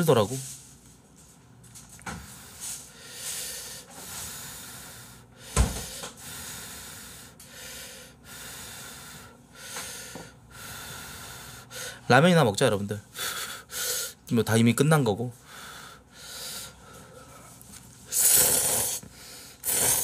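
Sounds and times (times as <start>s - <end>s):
noodles slurped: 18.1s - 19.0s, 19.6s - 20.0s.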